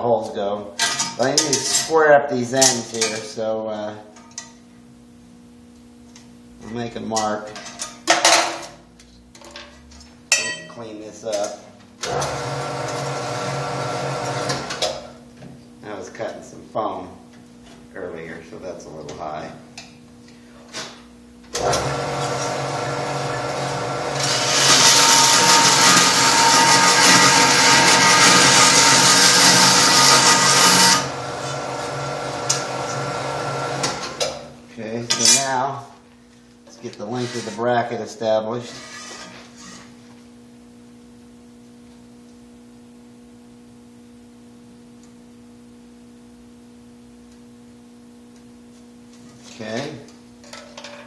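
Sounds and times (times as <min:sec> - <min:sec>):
steady electrical hum: 0:00.0 - 0:51.0
bandsaw motor humming: 0:12.1 - 0:14.8, 0:21.6 - 0:34.4
saw blade cutting metal: 0:23.2 - 0:31.6.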